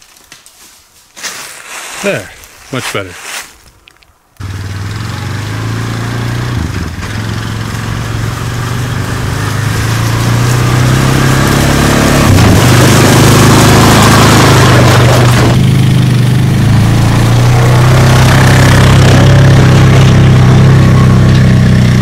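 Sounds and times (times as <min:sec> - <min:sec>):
atv engine running: 0:04.4 - 0:22.0.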